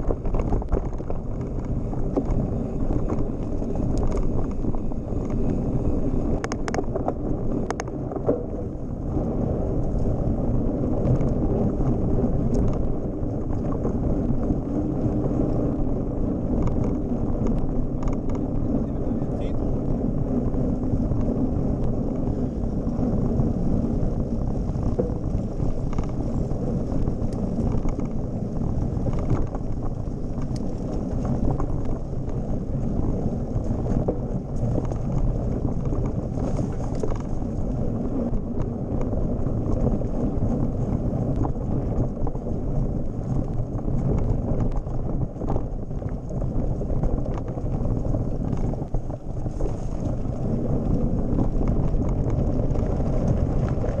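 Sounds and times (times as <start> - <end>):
bike rattling and knocking: 0.0 - 54.0
bike tyres rumbling on gravel: 0.0 - 54.0
wind rumbling on microphone: 0.0 - 54.0.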